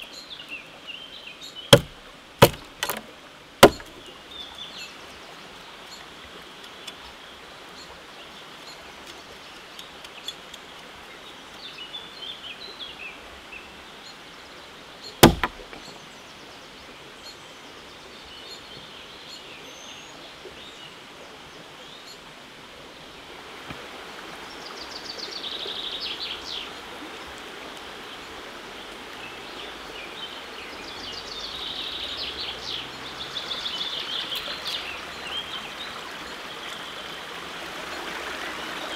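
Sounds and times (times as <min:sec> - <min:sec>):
songbirds chirping: 0:00.0 - 0:38.9
sharp knock: 0:01.8 - 0:03.0, 0:03.6 - 0:04.0, 0:15.2 - 0:15.8.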